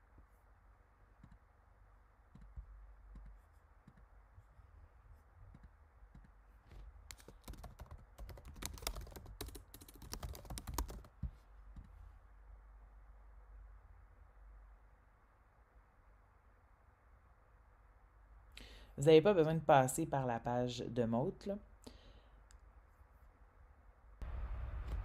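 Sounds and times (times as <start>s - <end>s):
typing on a computer keyboard: 7.1s - 11.2s.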